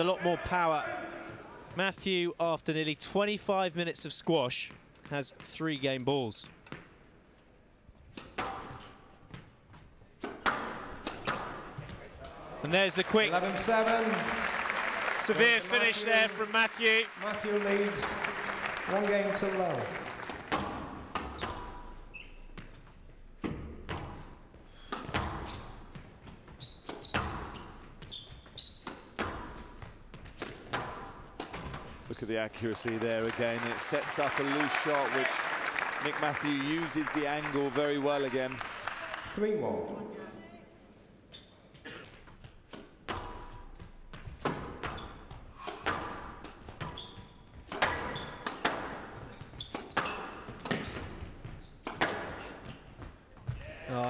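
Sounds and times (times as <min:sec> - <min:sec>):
rackets striking squash ball: 0:08.0 - 0:12.1, 0:20.2 - 0:32.1, 0:42.2 - 0:53.6
shoes squeaking on court: 0:21.1 - 0:32.6, 0:41.2 - 0:53.7
squash ball cracks: 0:47.7 - 0:49.1, 0:51.8 - 0:52.4.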